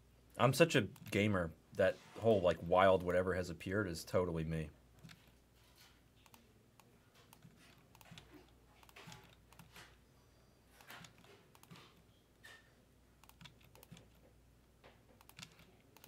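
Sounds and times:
keyboard typing clicks: 0:13.2 - 0:14.2, 0:15.2 - 0:16.0.

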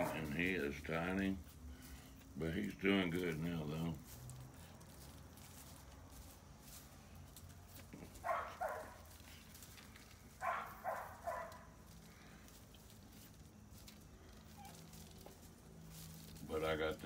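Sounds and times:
small dog barking: 0:08.2 - 0:09.0, 0:10.4 - 0:11.7.

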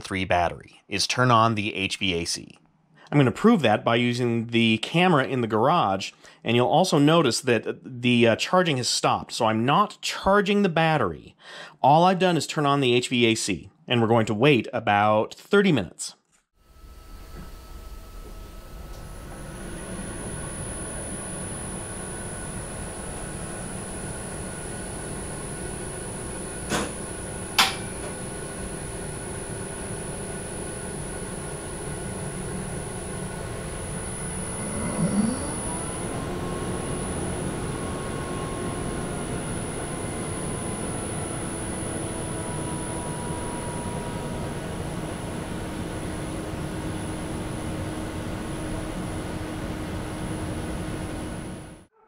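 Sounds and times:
rising whine spinning up: 0:16.6 - 0:51.8
car climate system humming: 0:32.7 - 0:44.3.

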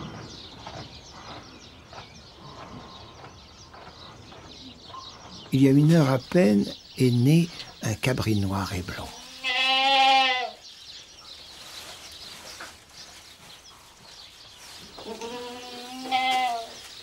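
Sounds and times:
goats bleating: 0:09.1 - 0:10.6, 0:15.0 - 0:16.8.

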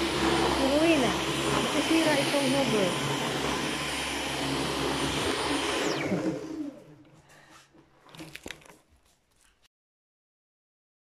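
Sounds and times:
vacuum cleaner motor whine: 0:00.0 - 0:07.2.

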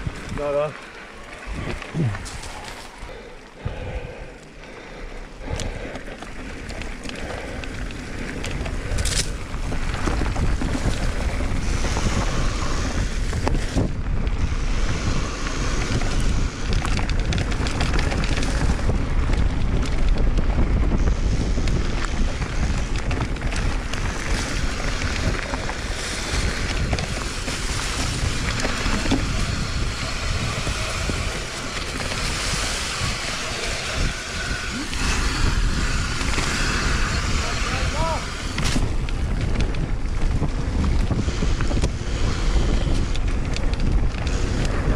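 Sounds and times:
wind buffeting microphone: 0:00.0 - 0:44.9.

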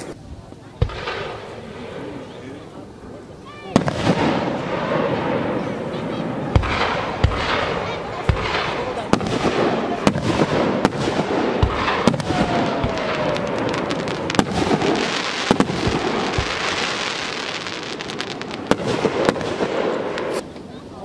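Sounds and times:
fireworks bursting with bangs: 0:00.0 - 0:20.9
fireworks crackling: 0:00.0 - 0:21.0.

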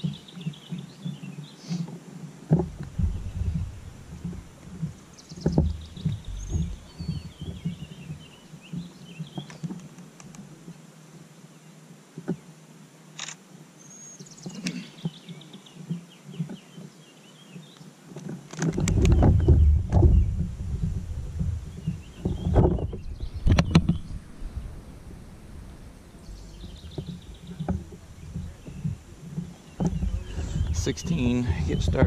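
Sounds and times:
songbirds chirping and whistling: 0:00.0 - 0:10.8, 0:13.8 - 0:18.0, 0:18.6 - 0:32.0
gear knocking in a kayak: 0:02.2 - 0:10.8, 0:17.6 - 0:32.0
loud low rumble: 0:02.6 - 0:07.4, 0:18.9 - 0:29.2.

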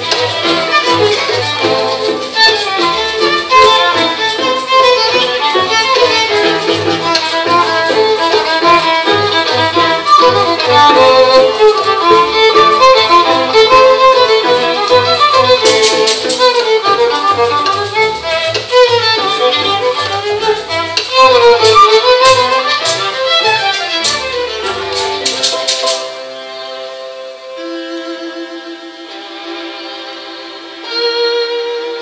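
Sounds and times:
string quintet playing: 0:00.0 - 0:32.0
sharp percussive clicks: 0:14.8 - 0:26.2.

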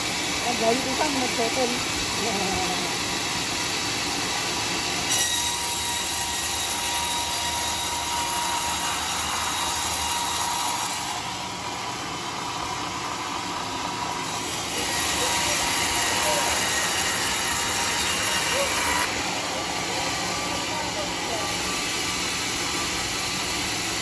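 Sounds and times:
sawmill machine running: 0:00.0 - 0:24.0
saw blade squealing through wood: 0:05.1 - 0:11.1, 0:14.5 - 0:19.1.

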